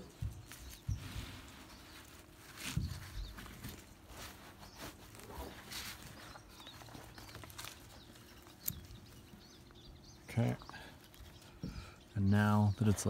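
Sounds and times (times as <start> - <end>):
strap webbing rustling: 0.0 - 9.8.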